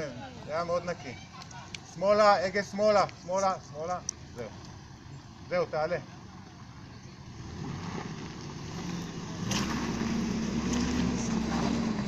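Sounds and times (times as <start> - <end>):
car engine pulling under load: 6.1 - 12.0.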